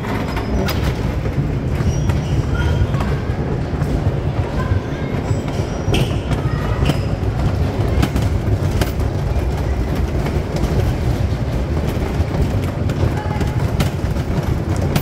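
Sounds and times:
bumper car rolling on steel floor: 0:00.0 - 0:15.0.

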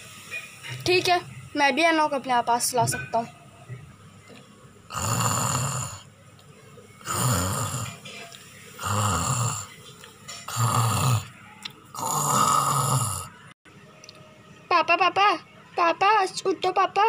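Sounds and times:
person snoring: 0:04.9 - 0:06.1, 0:07.0 - 0:08.0, 0:08.8 - 0:09.8, 0:10.5 - 0:13.4.

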